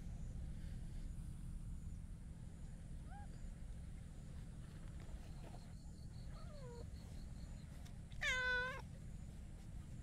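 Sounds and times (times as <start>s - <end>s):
cat meowing: 8.2s - 8.8s.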